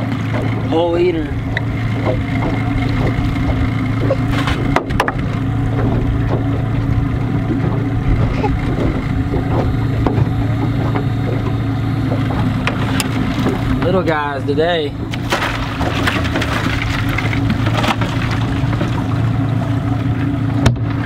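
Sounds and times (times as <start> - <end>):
boat motor idling: 0.0 - 21.0
sharp knocks and clatters: 1.6 - 6.6.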